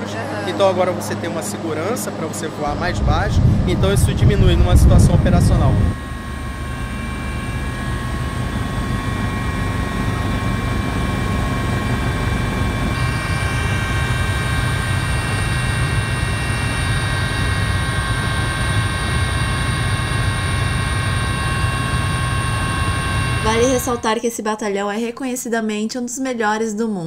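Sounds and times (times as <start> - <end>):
helicopter rotor beat: 0.0 - 24.2
turbine whine: 0.0 - 24.3.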